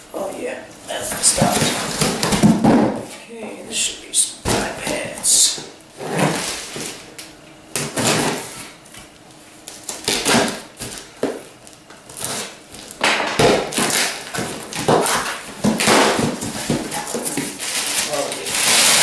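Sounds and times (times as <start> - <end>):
tape and cardboard tearing: 7.7 - 8.7, 9.7 - 11.4, 12.1 - 19.0.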